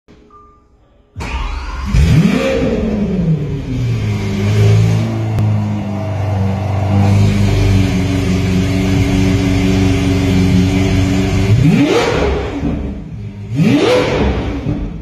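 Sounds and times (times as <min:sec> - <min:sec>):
car engine idling: 0:01.2 - 0:15.0
engine revving: 0:01.2 - 0:15.0.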